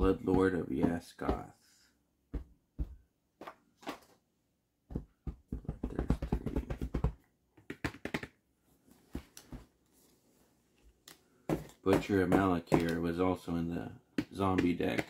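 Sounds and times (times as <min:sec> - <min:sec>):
cards clicking and tapping: 0:00.1 - 0:01.4, 0:04.9 - 0:08.4, 0:11.1 - 0:13.1, 0:14.1 - 0:15.0.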